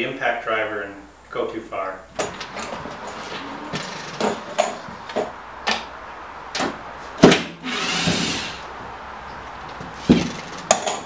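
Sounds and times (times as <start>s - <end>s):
cordless drill whirring: 7.6s - 8.6s
tools and screws knocking: 10.1s - 11.0s.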